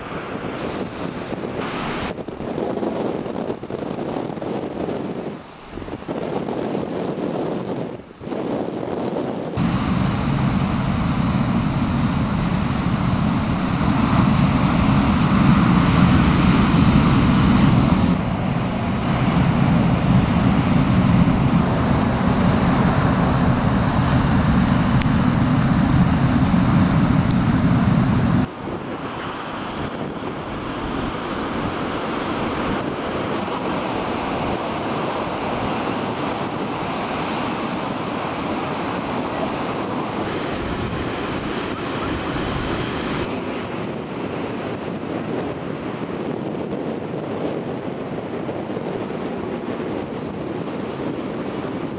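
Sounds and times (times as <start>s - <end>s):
surf breaking and churning: 0.0s - 51.9s
wind rumbling on microphone: 0.0s - 51.9s.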